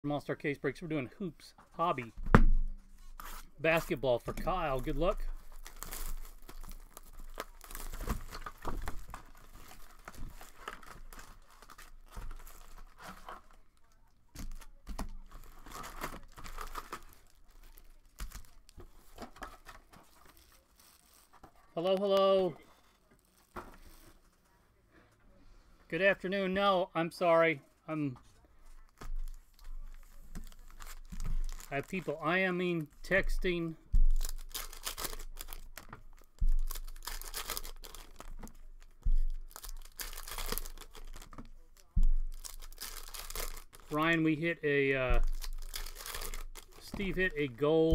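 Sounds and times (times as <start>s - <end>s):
card pack wrappers crinkling: 3.1s - 21.7s, 28.8s - 32.3s, 33.0s - 47.9s
dull low thumps: 33.8s - 34.6s.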